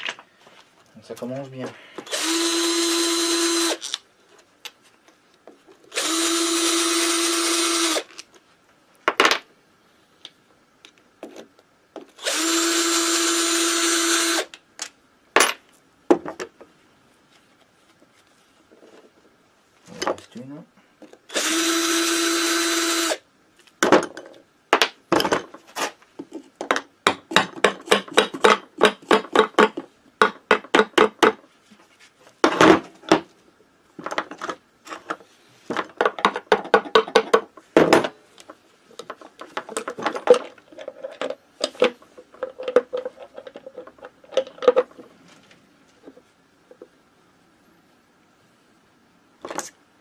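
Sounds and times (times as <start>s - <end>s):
cordless drill whirring: 2.1s - 3.9s, 5.9s - 8.1s, 12.2s - 14.5s, 21.3s - 23.2s.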